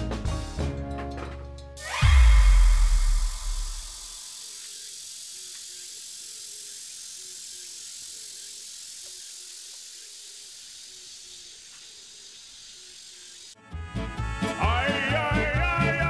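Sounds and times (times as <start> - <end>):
insects hissing chorus: 1.8 - 13.6.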